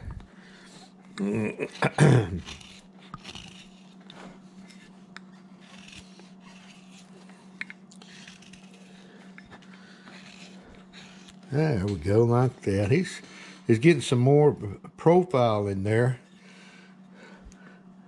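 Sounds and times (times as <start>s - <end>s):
steady low hum: 0.0s - 18.0s
gouge carving wood: 1.4s - 11.9s.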